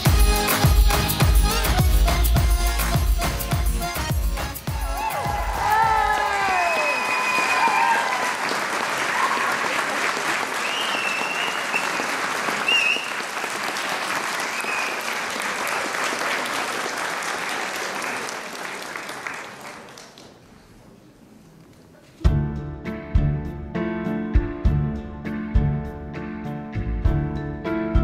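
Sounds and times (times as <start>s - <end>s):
audience applauding: 4.7s - 20.7s
short cheers: 4.8s - 13.2s.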